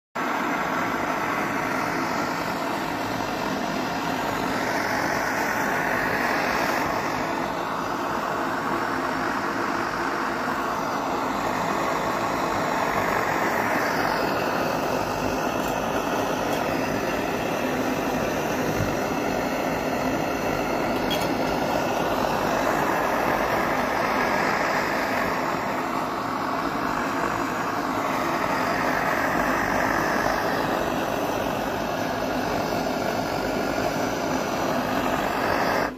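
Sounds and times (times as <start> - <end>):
camping stove burner roaring: 0.2 - 35.9.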